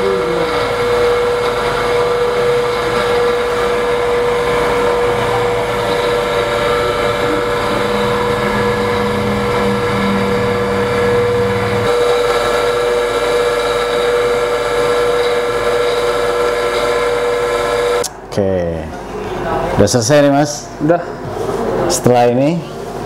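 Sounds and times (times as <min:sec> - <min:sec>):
low hum: 0:00.0 - 0:15.8
coil winding machine motor whine: 0:00.0 - 0:18.1.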